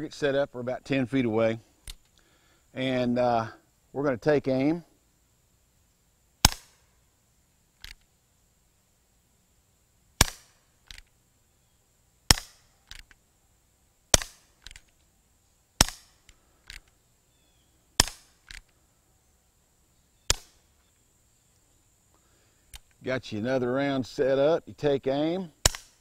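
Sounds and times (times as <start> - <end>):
air pistol shots cracking: 6.4 - 6.9, 10.2 - 11.0, 12.3 - 13.1, 14.1 - 14.9, 15.8 - 16.8, 18.0 - 18.6, 20.3 - 20.6, 25.6 - 26.0.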